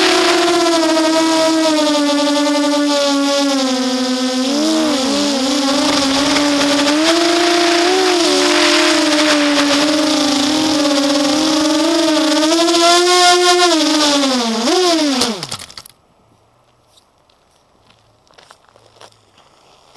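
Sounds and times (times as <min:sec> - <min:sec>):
quadcopter motors whining: 0:00.0 - 0:15.8.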